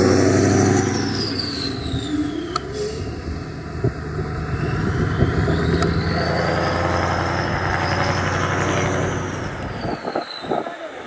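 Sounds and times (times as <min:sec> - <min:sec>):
diesel truck engine under load: 0:00.0 - 0:10.6
high whistle: 0:00.6 - 0:03.2, 0:04.4 - 0:08.0, 0:09.2 - 0:10.7.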